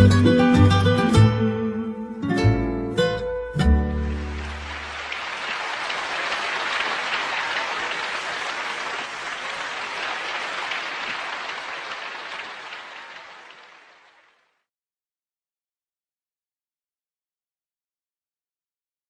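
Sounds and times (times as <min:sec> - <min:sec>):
audience applauding: 0:04.0 - 0:14.6.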